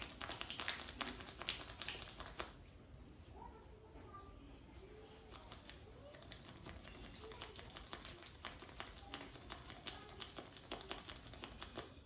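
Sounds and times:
fingers tapping on oiled scalp: 0:00.0 - 0:02.6, 0:05.3 - 0:12.0.

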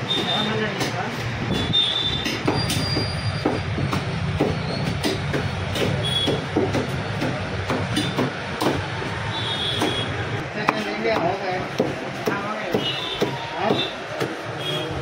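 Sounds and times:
cleaver chopping on wooden block: 0:03.4 - 0:08.8.

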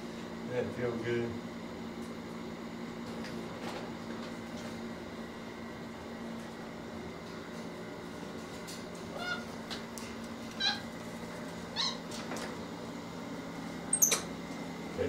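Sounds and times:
monkey squeaky calls: 0:10.6 - 0:10.9, 0:11.7 - 0:12.1.

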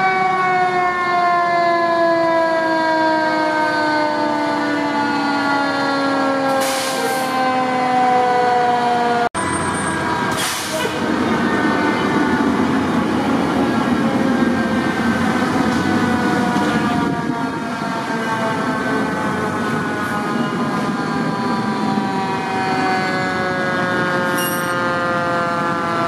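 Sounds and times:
fire engine mechanical siren: 0:00.0 - 0:26.0
fire truck engine drone: 0:00.0 - 0:26.0
air brake hiss: 0:06.5 - 0:07.3, 0:10.3 - 0:11.0.

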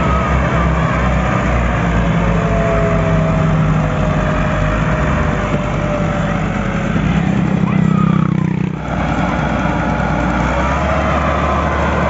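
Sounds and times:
tractor diesel engine labouring: 0:00.0 - 0:12.0.

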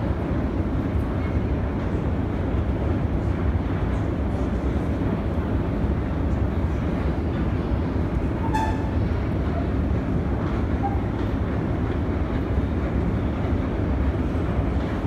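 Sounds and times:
escalator rumbling: 0:06.7 - 0:15.0
escalator squeak: 0:08.4 - 0:09.0.

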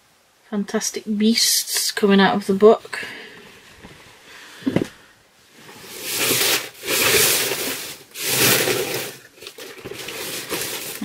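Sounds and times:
clothing and packaging rustling: 0:03.3 - 0:11.0.

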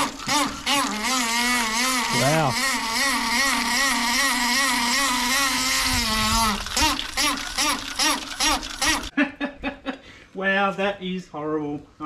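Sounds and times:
water tap buzzing drone: 0:00.0 - 0:09.1.

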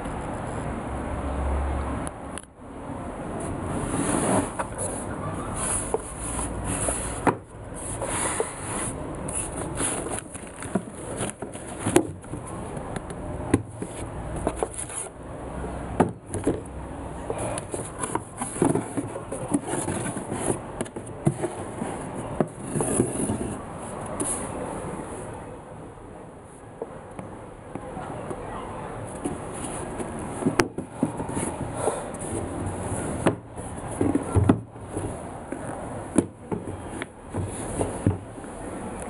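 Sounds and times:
cardboard and tissue paper rustling: 0:03.9 - 0:12.6, 0:17.6 - 0:24.5.

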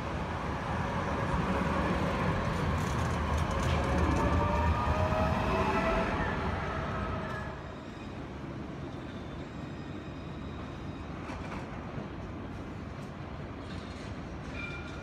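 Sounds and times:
street noise: 0:00.0 - 0:15.0
tram running gear rumble: 0:00.1 - 0:05.3.

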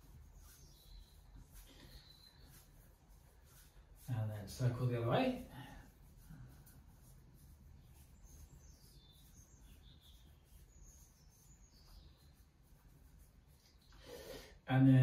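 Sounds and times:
faint high bird chirps: 0:00.2 - 0:02.9, 0:07.8 - 0:14.0.

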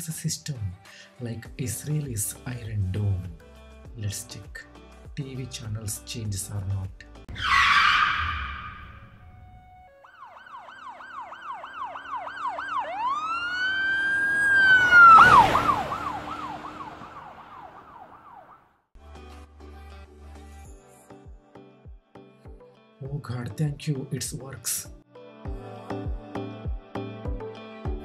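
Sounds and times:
electronic siren: 0:07.3 - 0:18.7.

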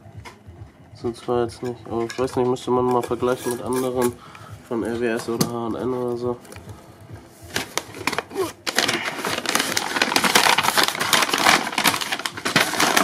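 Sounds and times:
packing paper crinkling: 0:07.4 - 0:13.0.

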